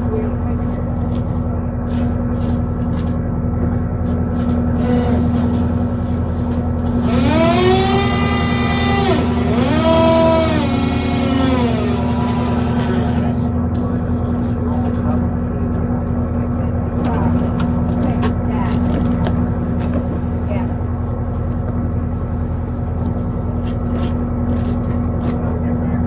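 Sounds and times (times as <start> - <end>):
engine drone: 0.0 - 26.0
machine whine spinning up: 7.0 - 13.5.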